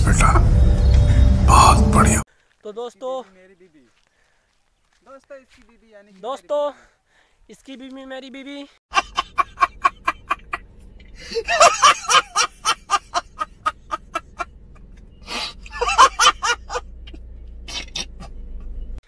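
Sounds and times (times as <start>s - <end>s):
man laughing hard: 8.9s - 10.6s, 11.2s - 14.5s, 15.6s - 16.8s.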